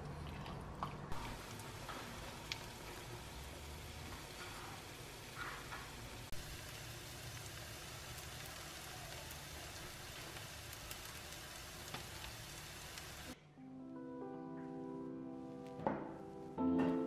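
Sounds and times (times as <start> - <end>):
pancake sizzling in oil: 1.1 - 13.4.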